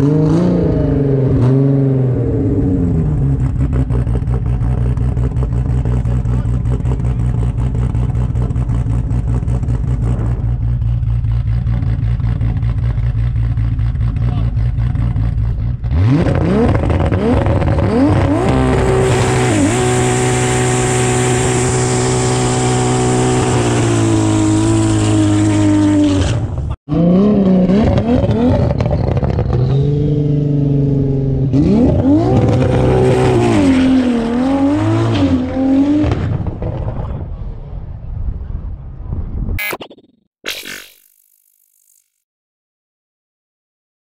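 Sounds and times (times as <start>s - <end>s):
car engine revving: 0.0s - 36.2s.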